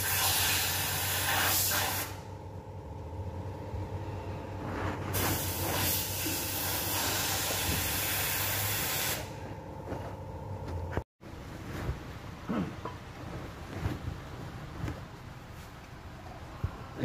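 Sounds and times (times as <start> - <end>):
low hum: 2.1 - 5.4, 6.4 - 15.4.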